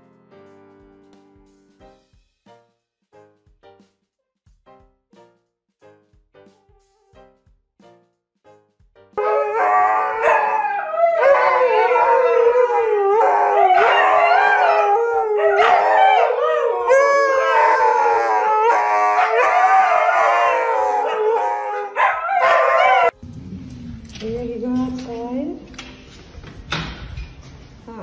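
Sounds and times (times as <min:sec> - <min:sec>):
dogs howling in chorus: 0:09.2 - 0:23.2.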